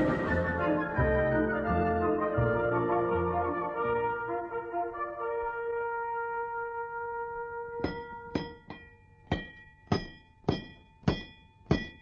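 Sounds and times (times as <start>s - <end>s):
held brass chord: 0.0s - 8.4s
metal struck ringing: 7.8s - 12.0s.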